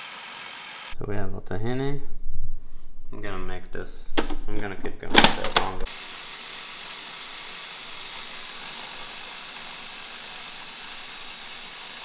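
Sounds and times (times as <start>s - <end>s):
food processor whirring: 0.0s - 1.0s, 5.9s - 12.0s.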